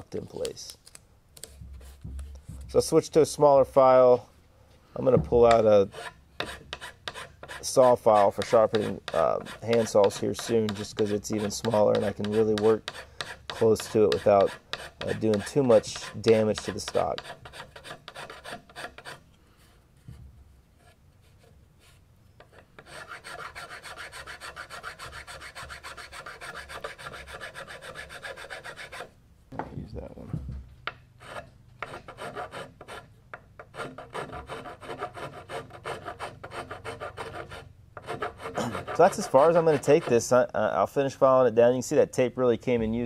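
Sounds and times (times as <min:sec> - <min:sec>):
hand file rasping on metal: 0:05.5 - 0:19.2, 0:22.4 - 0:29.1, 0:31.2 - 0:40.3.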